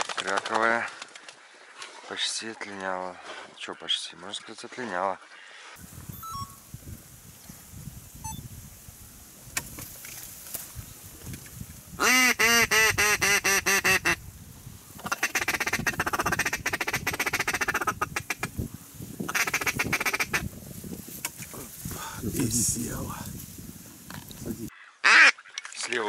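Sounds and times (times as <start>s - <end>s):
duck call chattering: 12.0s - 14.2s, 15.0s - 18.5s, 19.3s - 20.4s, 25.0s - 25.4s
duck call quacks: 12.0s - 14.2s, 15.0s - 18.5s, 19.3s - 20.4s, 25.0s - 25.4s.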